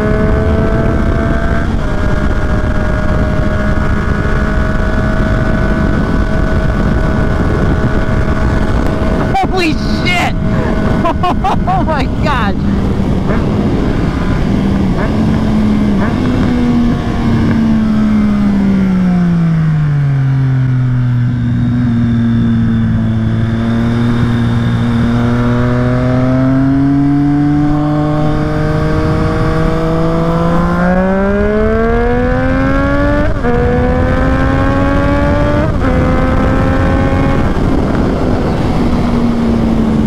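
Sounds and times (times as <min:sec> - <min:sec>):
motorcycle engine: 0:00.0 - 0:40.0.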